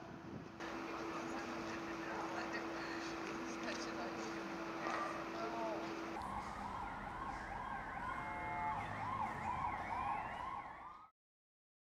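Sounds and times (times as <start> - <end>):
siren wailing: 4.7 - 11.1
siren tone gliding upward: 6.2 - 11.1.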